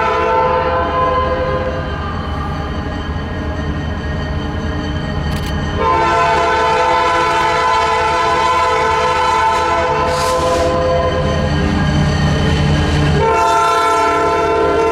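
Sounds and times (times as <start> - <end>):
locomotive air horn chord: 0.0 - 1.8, 5.8 - 11.3, 13.1 - 14.9
low rumble of train: 0.0 - 14.9.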